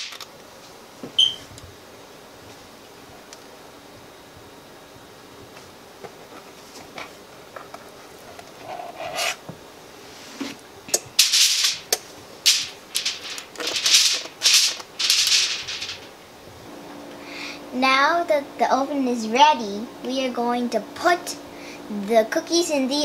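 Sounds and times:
aluminium foil crinkling: 10.9 - 16.2.

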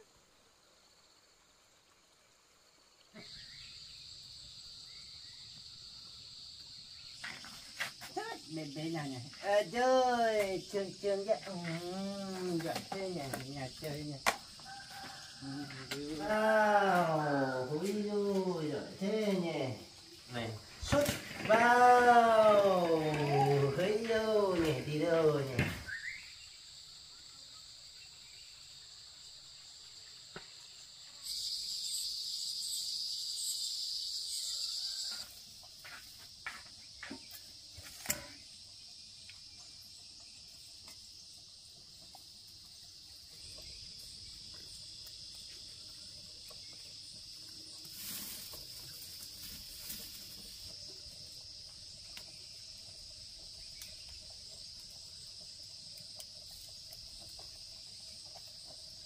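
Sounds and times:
insect chorus: 0.0 - 59.0
loud insect buzz: 23.0 - 41.7.

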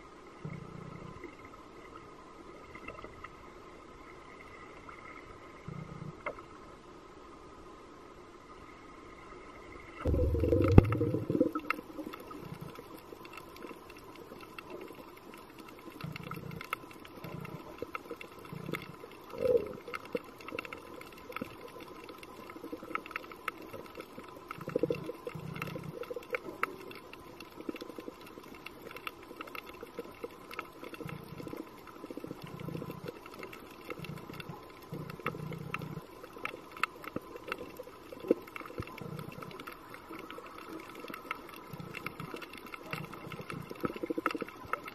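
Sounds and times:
faint steady hum: 0.0 - 44.9
crackling clicks: 10.0 - 44.9
short low rumbles: 10.1 - 11.6.

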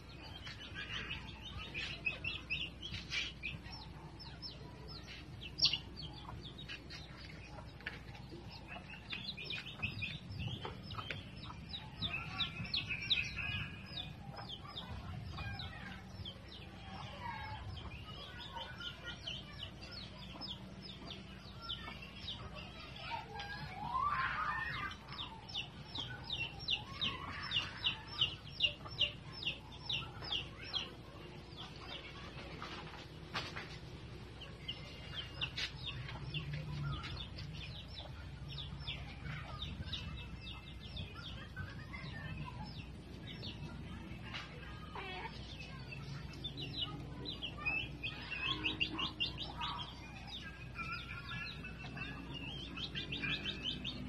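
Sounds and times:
chickens clucking and chirping: 0.0 - 54.0.

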